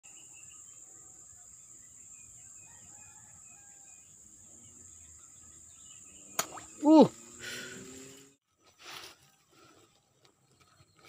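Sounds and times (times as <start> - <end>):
bird chirps: 0.0 - 7.4
insect drone: 0.1 - 8.4.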